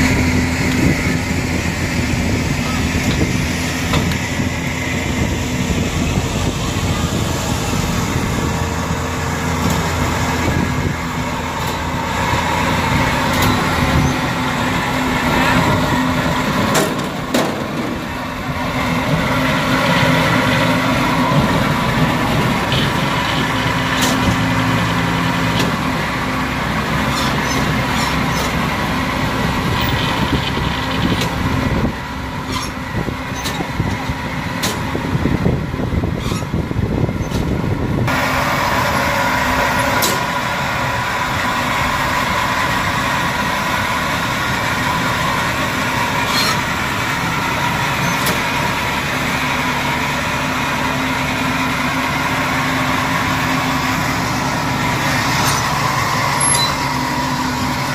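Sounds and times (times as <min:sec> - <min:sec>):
tracked vehicle engine running: 0:00.0 - 0:57.9.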